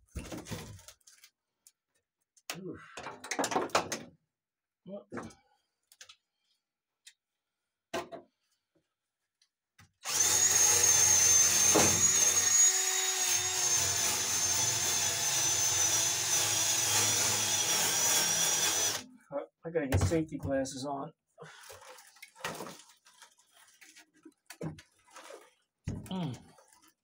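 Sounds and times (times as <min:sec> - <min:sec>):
power sander on sheet metal: 0:10.1 - 0:19.0.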